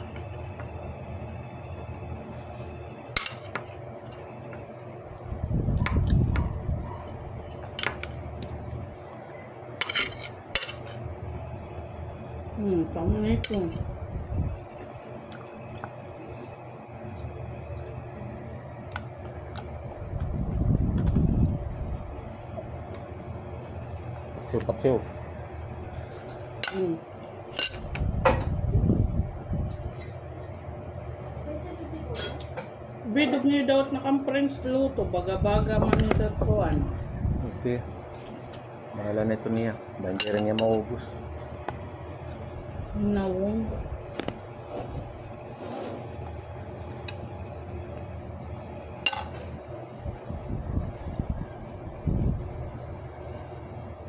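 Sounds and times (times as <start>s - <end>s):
steady low hum: 0.0s - 54.0s
low rumble of movement: 3.7s - 54.0s
muffled chewing: 5.1s - 9.6s, 14.8s - 21.2s
dishes clinking: 9.8s - 11.0s, 40.1s - 40.9s, 49.1s - 49.4s.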